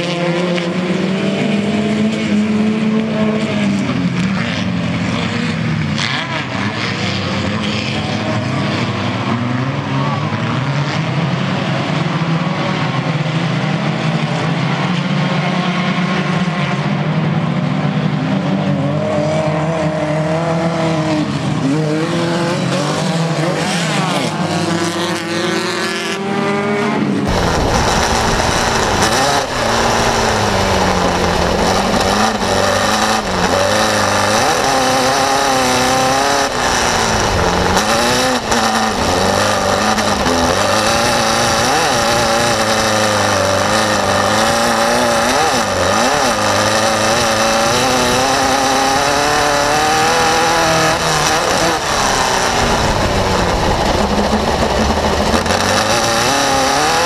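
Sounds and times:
buggy engine racing: 0.0 - 57.0.

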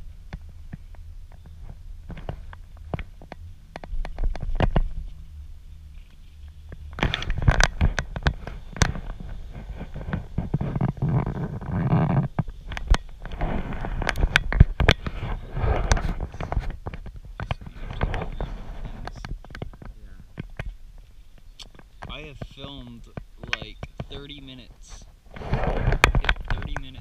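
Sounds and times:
sharp clicks and crackles: 0.0 - 5.2, 5.9 - 27.0
wind rumble on microphone: 0.0 - 27.0
skis scraping over hard snow: 13.3 - 14.3, 15.0 - 16.7, 25.3 - 27.0.

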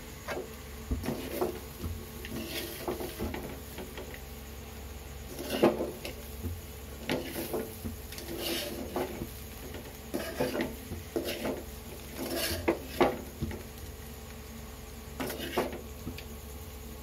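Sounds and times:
spoon scraping metal pan: 2.2 - 3.5, 5.3 - 6.2, 7.0 - 13.2, 15.2 - 15.8.

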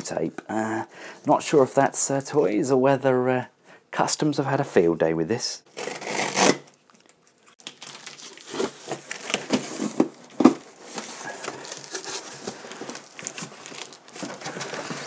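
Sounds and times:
tape ripping off cardboard: 5.7 - 6.8, 7.6 - 11.0.

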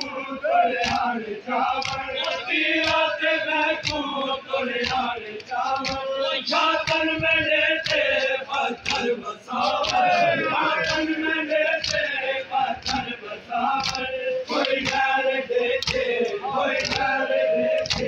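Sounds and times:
men chanting together: 0.0 - 18.0
chest-beating slaps: 4.8 - 5.1, 6.8 - 10.2, 17.8 - 18.0.

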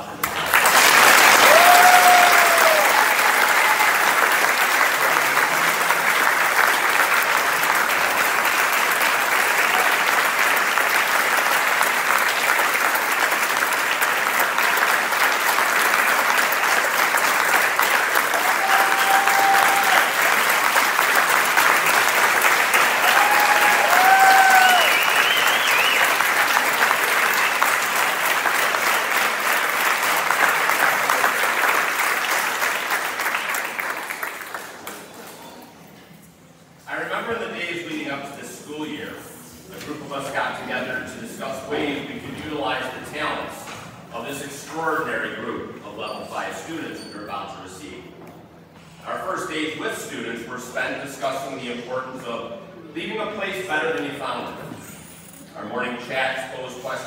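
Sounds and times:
audience applauding: 0.0 - 35.3.

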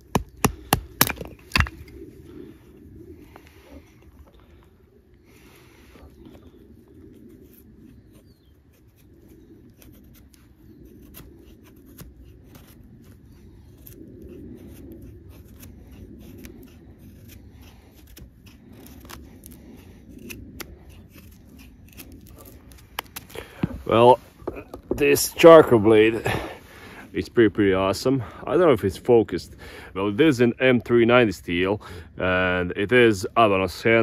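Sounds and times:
knife scraping wood: 7.3 - 25.2.

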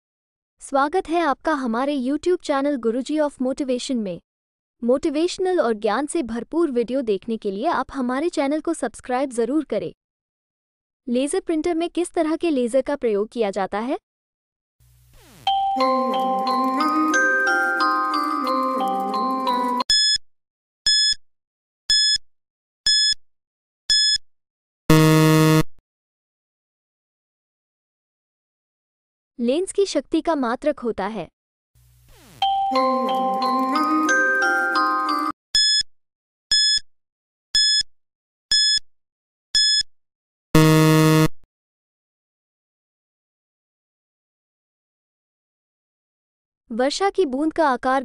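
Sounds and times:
short high countdown beeps: 20.9 - 21.2, 21.9 - 22.2, 22.9 - 23.2, 23.9 - 24.2, 24.9 - 25.7, 35.6 - 35.8, 36.5 - 36.8, 37.6 - 37.9, 38.5 - 38.8, 39.6 - 39.9, 40.6 - 41.3
low buzzer: 24.9 - 25.8, 40.6 - 41.4.

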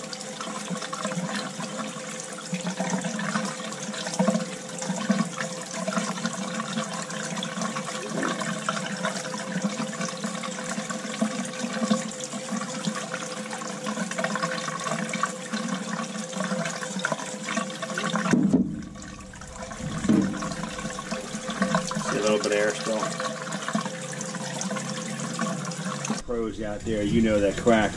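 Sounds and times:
water and air sputtering from hose: 18.2 - 23.2.

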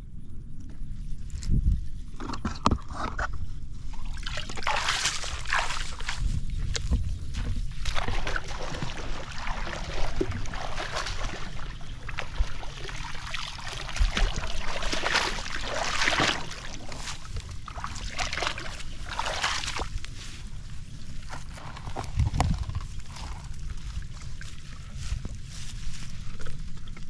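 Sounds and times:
grass rustling: 0.9 - 27.0
shallow water sloshing and splashing: 3.8 - 27.0
water trickling from basket: 7.9 - 19.9.

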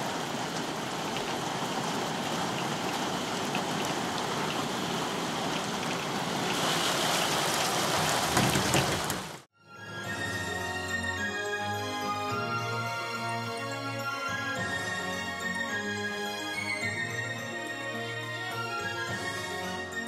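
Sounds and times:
rain falling: 0.0 - 9.5.

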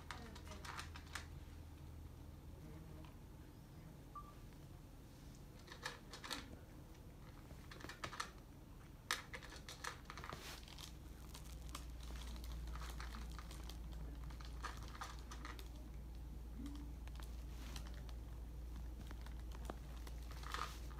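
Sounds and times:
cat eating clicks and crackles: 0.0 - 1.4, 5.6 - 20.9
low steady hum: 0.0 - 20.9.

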